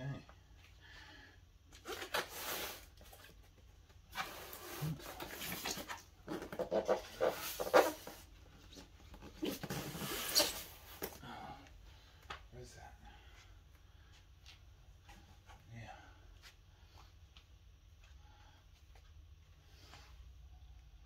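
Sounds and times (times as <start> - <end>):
foam box squeaking and scraping: 4.1 - 8.3, 9.3 - 10.9.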